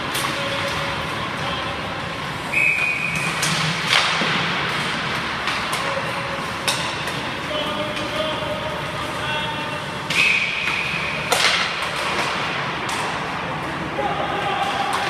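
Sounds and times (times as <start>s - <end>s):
hockey sticks hitting pucks: 0.0s - 15.0s
skates scraping ice: 0.0s - 15.0s
high whistle: 2.5s - 3.4s, 10.1s - 10.7s.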